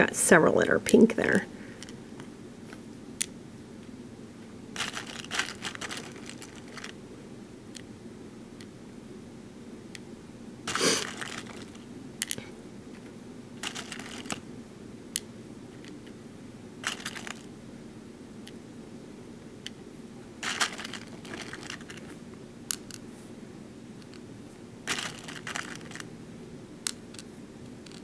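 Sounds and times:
low steady hum: 0.0s - 28.0s
plastic beads clicking and rattling: 4.8s - 7.0s, 10.7s - 12.4s, 13.6s - 14.4s, 16.8s - 17.5s, 20.4s - 22.1s, 24.9s - 26.1s.

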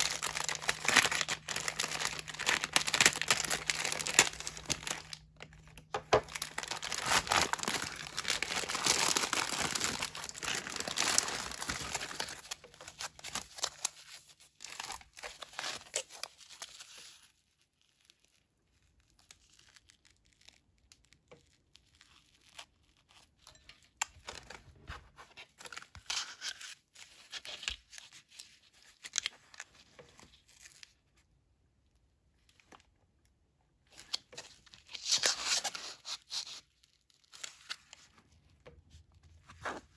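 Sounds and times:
foil pouch rustling: 0.0s - 17.4s
plastic packaging crinkling: 0.0s - 31.0s.

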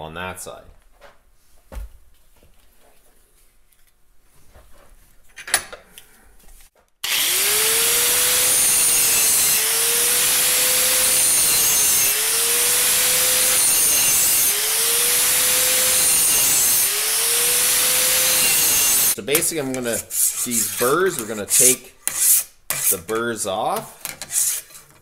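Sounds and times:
angle grinder grinding steel: 7.0s - 23.0s.

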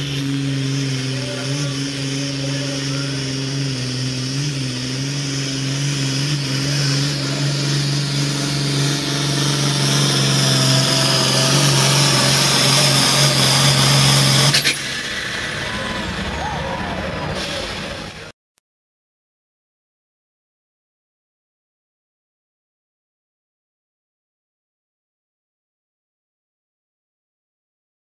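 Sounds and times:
high whine: 0.0s - 18.3s
tractor diesel engine under load: 0.0s - 18.4s.

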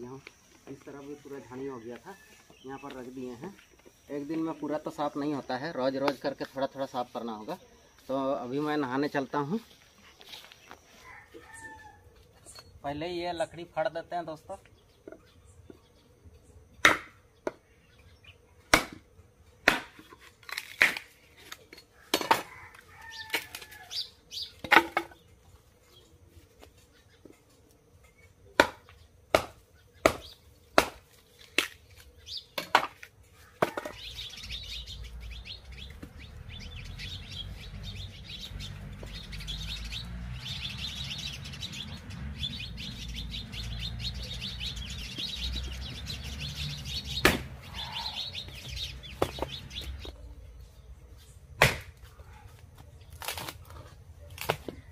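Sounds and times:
birds chirping: 0.0s - 20.6s, 21.2s - 54.9s
low steady background noise: 0.0s - 54.9s
axe chopping firewood: 16.8s - 17.6s, 18.7s - 22.5s, 28.6s - 31.8s, 32.6s - 34.0s, 47.2s - 47.6s, 49.2s - 49.5s, 51.6s - 52.1s, 54.3s - 54.9s.

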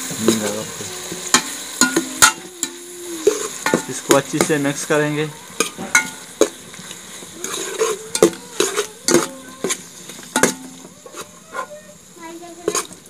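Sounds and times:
faint frying sizzle: 0.0s - 13.0s
metal ladle clanking on pot: 1.3s - 4.6s, 5.6s - 6.6s, 7.4s - 11.2s.

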